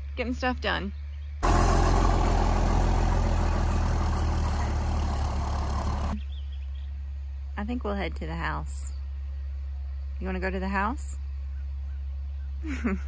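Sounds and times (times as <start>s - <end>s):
tractor diesel engine running: 1.4s - 6.3s.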